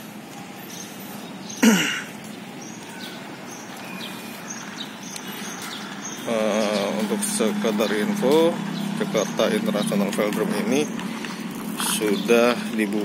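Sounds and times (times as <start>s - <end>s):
outdoor background noise: 0.0s - 13.0s
person coughing or grunting: 1.6s - 2.1s.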